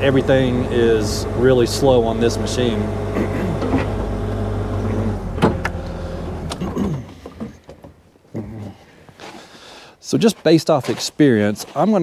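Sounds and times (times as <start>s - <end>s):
diesel engine running: 0.0s - 7.6s.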